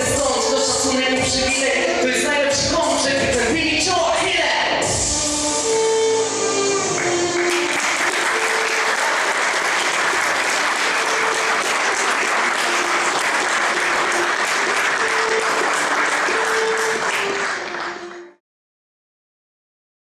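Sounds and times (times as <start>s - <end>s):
audience applauding: 6.9s - 18.4s.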